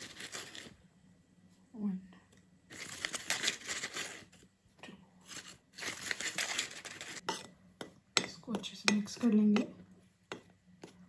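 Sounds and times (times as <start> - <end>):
plastic bag crinkling: 0.0 - 0.8, 2.7 - 4.4, 5.3 - 7.2.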